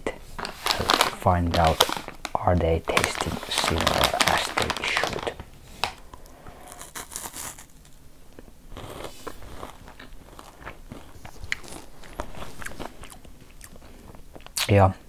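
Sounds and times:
chewing crunchy chocolate wafer: 0:06.6 - 0:14.7.

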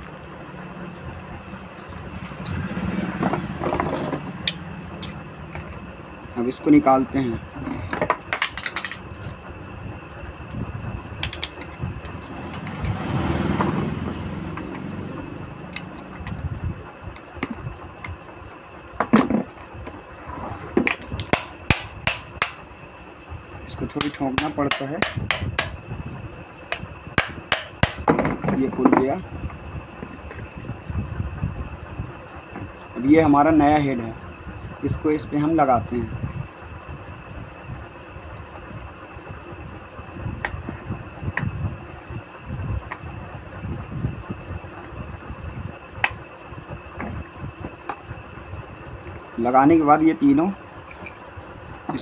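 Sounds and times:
low uneven rumble: 0:00.0 - 0:24.4
handling noise: 0:01.6 - 0:06.0.

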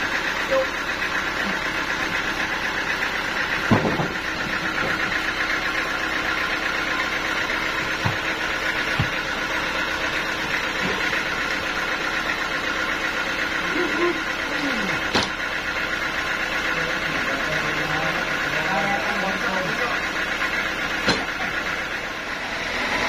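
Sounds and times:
band sawmill machinery running: 0:00.0 - 0:23.0
dull knocks of log rolling: 0:03.5 - 0:05.2, 0:07.6 - 0:09.5.

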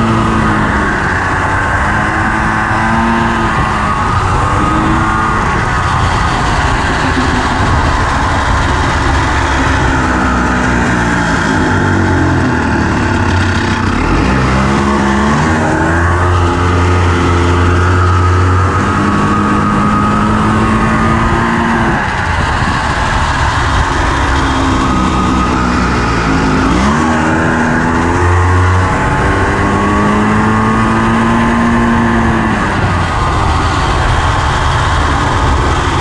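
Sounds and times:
single-cylinder engine revving: 0:00.0 - 0:36.0.

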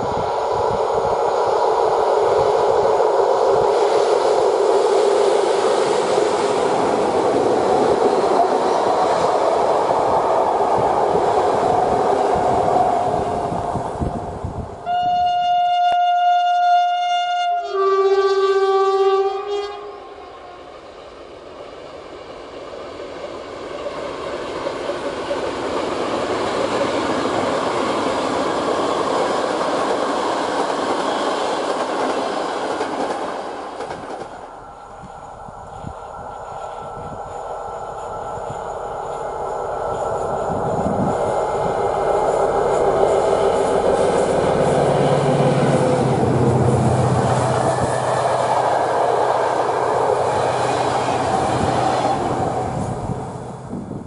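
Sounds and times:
train wheels on rails: 0:00.0 - 0:14.9, 0:20.6 - 0:54.0
diesel locomotive rumbling past: 0:00.0 - 0:16.8, 0:17.5 - 0:54.0
locomotive horn blasts: 0:14.8 - 0:20.6.

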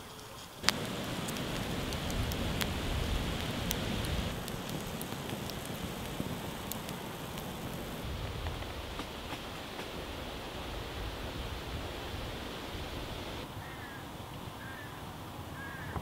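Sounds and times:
crackles and pops: 0:00.0 - 0:10.1
onions sizzling in oil: 0:00.6 - 0:13.4.

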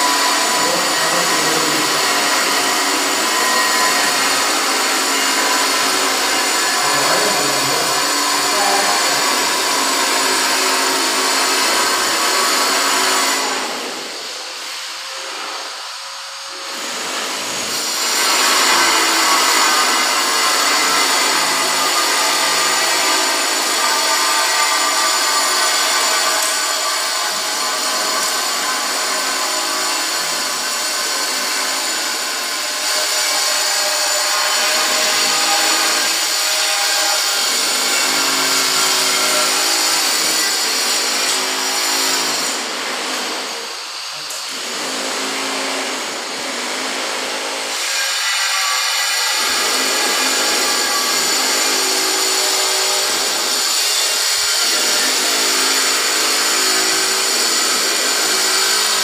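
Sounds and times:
power tool hiss and whine: 0:00.0 - 0:30.6, 0:32.9 - 0:45.7.

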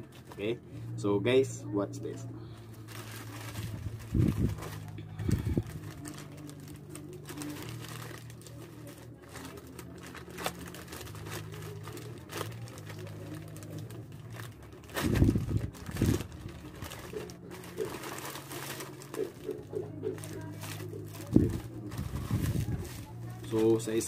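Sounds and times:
plastic pouch crinkling: 0:02.7 - 0:24.0.

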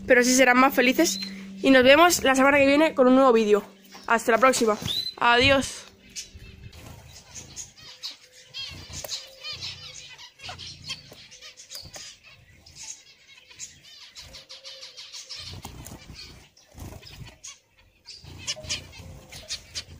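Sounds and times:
low rumble: 0:00.0 - 0:07.8
finches chirping: 0:00.0 - 0:19.9.

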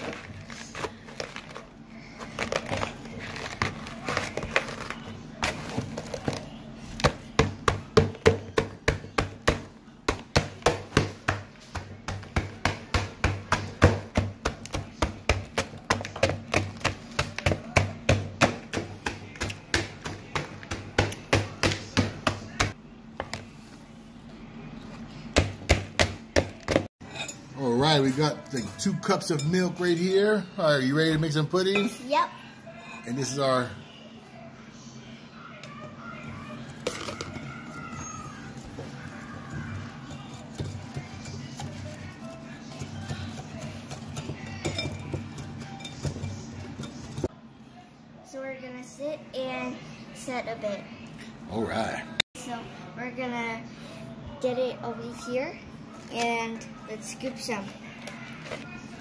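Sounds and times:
potato masher crunching cookies: 0:00.0 - 0:22.6, 0:36.2 - 0:47.3.

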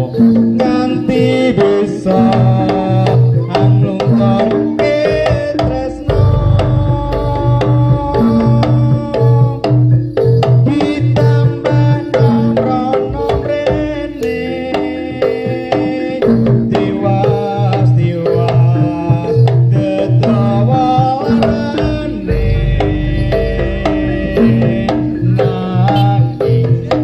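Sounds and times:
pitched percussion melody: 0:00.0 - 0:27.0
hand drum strokes: 0:02.2 - 0:11.0
low pulse: 0:06.1 - 0:09.5.

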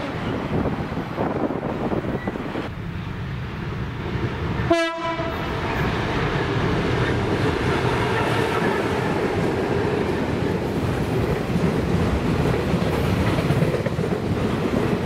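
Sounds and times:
diesel train rumbling: 0:00.0 - 0:15.0
locomotive horn toot: 0:04.7 - 0:05.5.

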